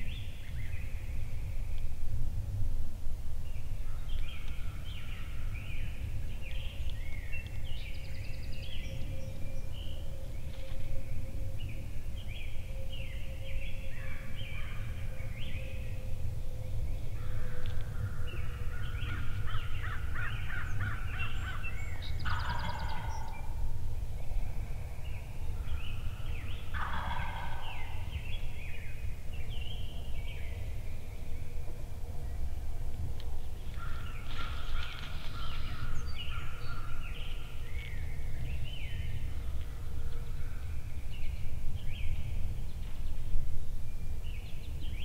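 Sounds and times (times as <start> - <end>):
songbirds singing: 0.0 - 2.1, 3.3 - 45.0
turkey gobbling: 22.3 - 23.2, 26.7 - 28.0.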